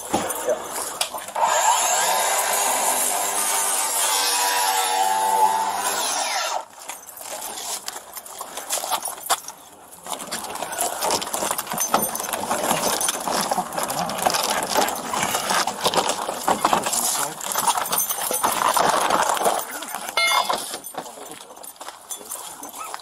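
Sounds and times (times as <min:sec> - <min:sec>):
power tool cutting: 0:01.4 - 0:06.7.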